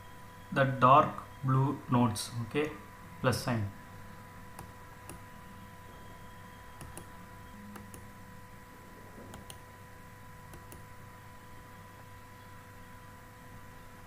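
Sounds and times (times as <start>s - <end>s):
electrical hum: 0.0s - 14.0s
computer mouse clicks: 4.6s - 5.2s, 6.8s - 7.1s, 7.7s - 8.1s, 9.2s - 9.6s, 10.5s - 10.9s.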